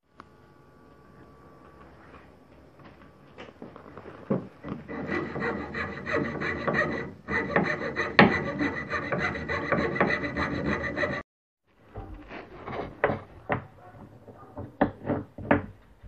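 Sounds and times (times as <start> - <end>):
fretsaw cutting wood: 4.6 - 11.2.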